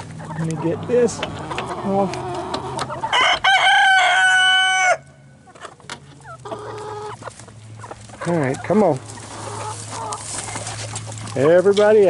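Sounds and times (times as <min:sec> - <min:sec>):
rooster crowing: 0:03.1 - 0:05.3.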